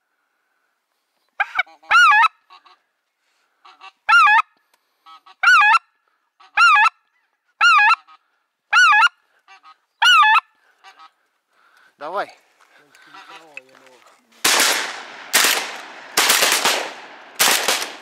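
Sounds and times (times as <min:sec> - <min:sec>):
goose call honks: 0:13.0 - 0:13.6.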